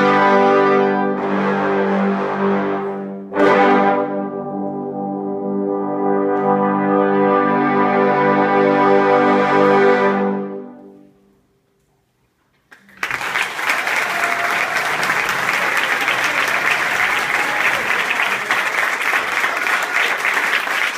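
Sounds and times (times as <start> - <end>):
trombone choir chord: 0.0 - 10.8
applause: 12.7 - 20.9.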